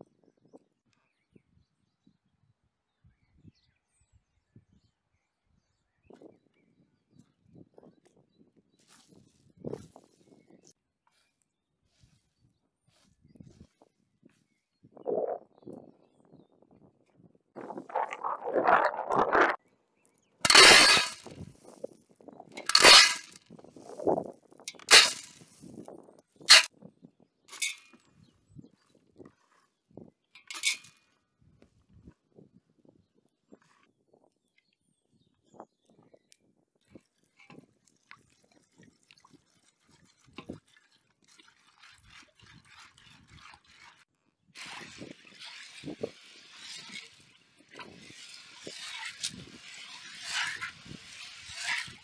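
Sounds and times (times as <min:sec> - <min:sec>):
dry beans rattling in metal pot: 0:20.5 - 0:21.3, 0:22.6 - 0:23.4, 0:24.6 - 0:25.5, 0:26.5 - 0:26.7, 0:27.5 - 0:27.8, 0:30.4 - 0:30.9, 0:44.6 - 0:52.0
beans rustling: 0:22.6 - 0:23.4, 0:24.7 - 0:25.7
water pouring into metal pot: 0:37.6 - 0:44.0, 0:44.6 - 0:52.0.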